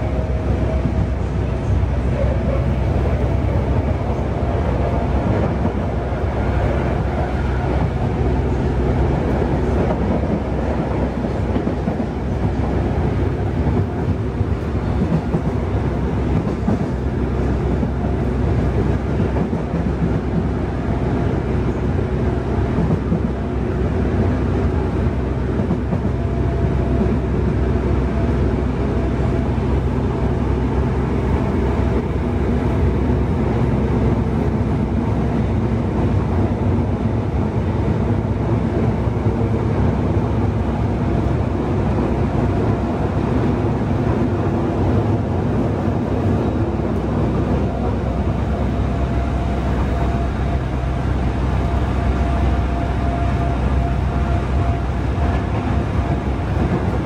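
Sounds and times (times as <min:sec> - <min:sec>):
subway car running in tunnel: 0:00.0 - 0:57.0
wheels on rail: 0:00.0 - 0:57.0.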